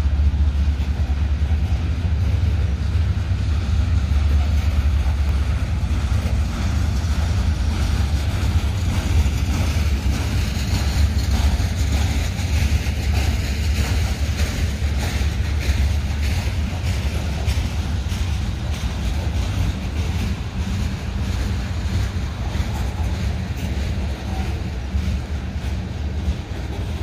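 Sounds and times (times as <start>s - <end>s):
freight train rumbling past: 0.0s - 27.0s
train wheel clicks: 0.0s - 27.0s.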